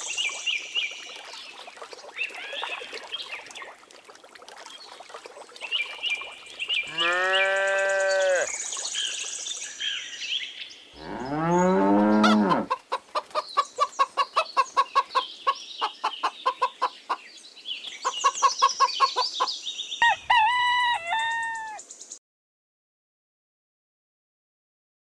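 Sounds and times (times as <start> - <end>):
cow mooing: 6.9 - 8.5, 11.0 - 12.7
hens clucking: 12.2 - 17.2, 18.0 - 19.4
rooster crowing: 20.0 - 21.8.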